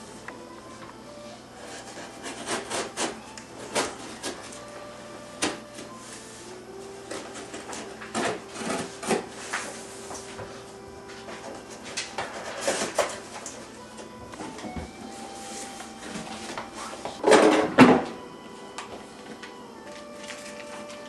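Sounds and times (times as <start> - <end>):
knife cutting cardboard: 1.6 - 4.4.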